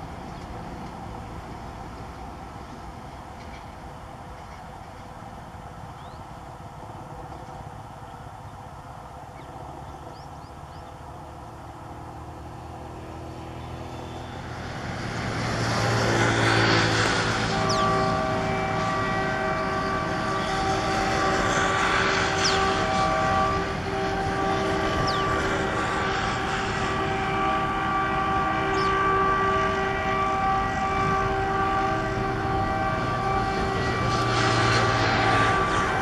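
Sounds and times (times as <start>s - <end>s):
diesel locomotive engine drone: 0.0s - 36.0s
locomotive horn blasts: 13.8s - 36.0s.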